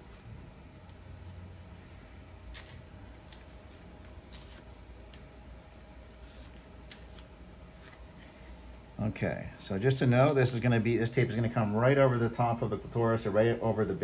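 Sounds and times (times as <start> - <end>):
paper backing peeling off tape: 2.5 - 8.6.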